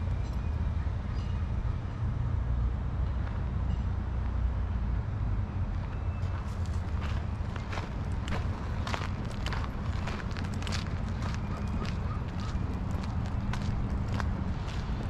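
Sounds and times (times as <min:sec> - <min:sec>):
low outdoor rumble: 0:00.0 - 0:15.0
footsteps on paved path: 0:05.7 - 0:15.0.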